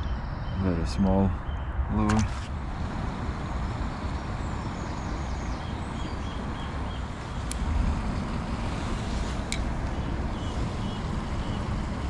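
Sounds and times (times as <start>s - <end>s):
light tick: 7.4s - 7.6s
faint bird chirps: 9.9s - 11.7s.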